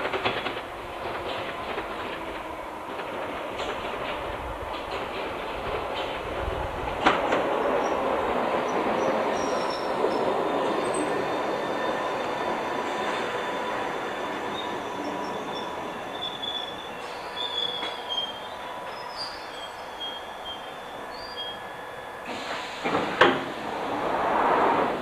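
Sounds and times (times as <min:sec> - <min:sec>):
train braking to a stop: 0:07.5 - 0:25.0
high brake squeals: 0:09.0 - 0:23.0.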